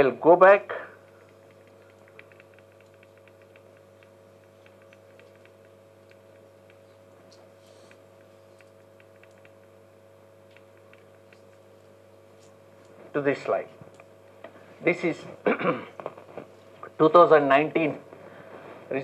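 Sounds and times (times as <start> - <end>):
sound system electrical hum: 0.0 - 19.0
faint ticks and clicks: 0.9 - 13.0, 13.8 - 14.6.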